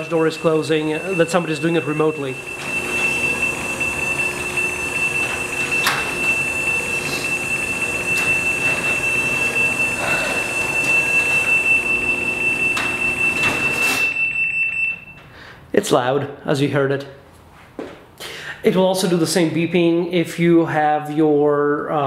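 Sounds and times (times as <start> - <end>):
garage door rattling: 0.0 - 14.9
garage door opener motor: 0.0 - 15.1
high-pitched warning beep: 0.0 - 15.3.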